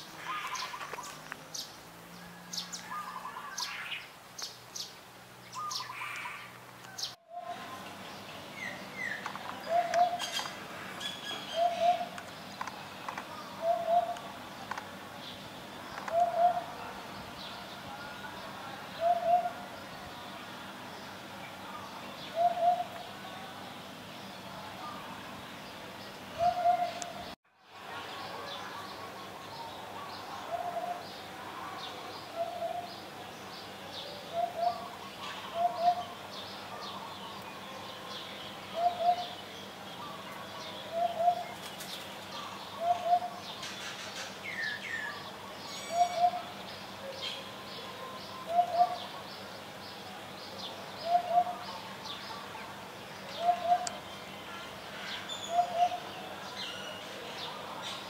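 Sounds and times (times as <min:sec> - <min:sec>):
small birds chirping: 0:00.0 - 0:58.0
hoopoe calling low oop notes: 0:08.6 - 0:12.3, 0:13.4 - 0:14.4, 0:16.0 - 0:20.4, 0:22.3 - 0:23.5, 0:26.4 - 0:27.4, 0:32.3 - 0:33.0, 0:34.2 - 0:36.2, 0:38.7 - 0:39.4, 0:42.4 - 0:43.4, 0:47.8 - 0:49.3, 0:53.4 - 0:54.1.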